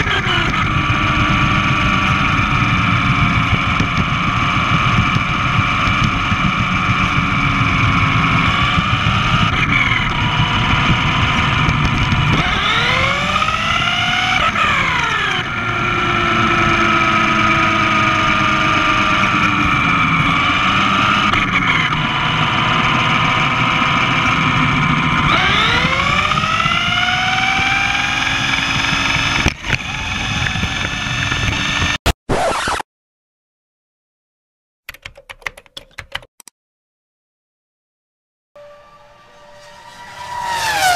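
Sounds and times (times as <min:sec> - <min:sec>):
rc car motor whining: 0:00.0 - 0:32.0.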